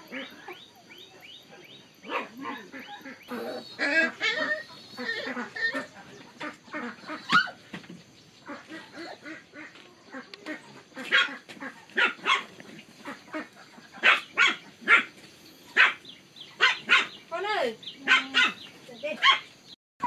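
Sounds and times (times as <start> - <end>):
dog barking and yipping: 1.2 - 6.0, 7.2 - 7.6, 11.0 - 12.6, 14.0 - 19.6.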